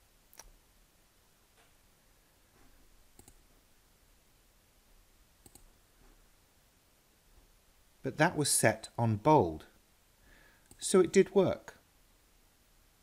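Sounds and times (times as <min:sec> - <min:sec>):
computer mouse clicking: 0:03.2 - 0:03.4, 0:05.4 - 0:05.7.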